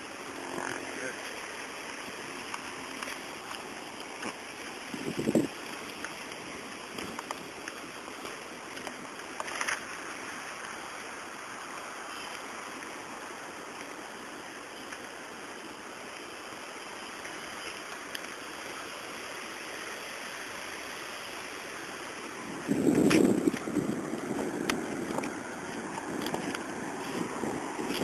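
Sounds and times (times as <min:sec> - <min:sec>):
wind rushing on microphone: 0:04.2 - 0:09.2, 0:22.1 - 0:28.0.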